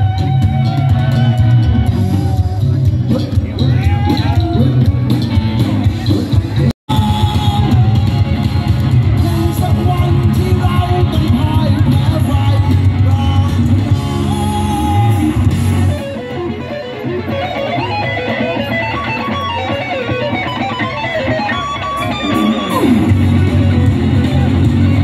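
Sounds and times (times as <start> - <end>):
electric guitar solo: 0.0 - 6.0, 14.2 - 25.0
live rock band: 0.0 - 25.0.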